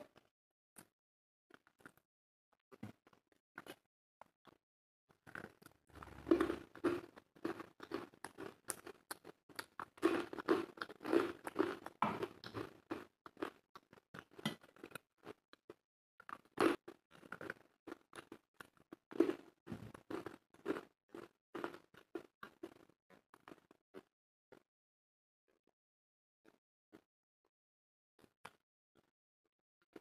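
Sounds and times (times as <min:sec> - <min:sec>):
person chewing food: 0:02.7 - 0:04.6, 0:05.2 - 0:24.6.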